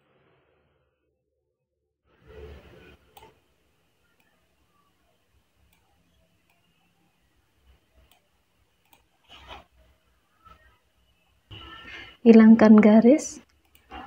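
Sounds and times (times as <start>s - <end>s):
faint mouse clicks: 8.0s - 9.5s.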